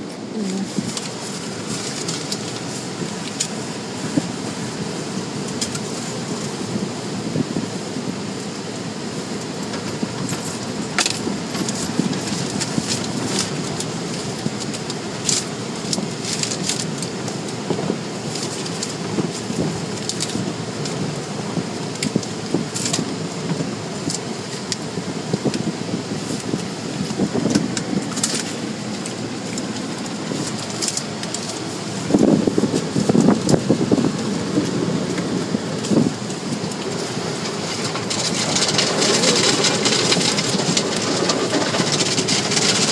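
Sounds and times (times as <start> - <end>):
water spray on windshield: 0.0 - 42.9
car wash brushes sweeping: 9.1 - 42.9.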